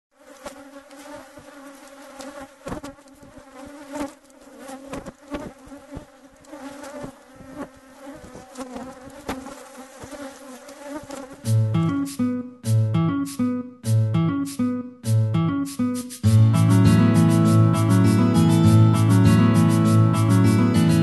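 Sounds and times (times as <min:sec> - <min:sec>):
honeybees buzzing: 0:00.2 - 0:12.4, 0:16.5 - 0:21.0.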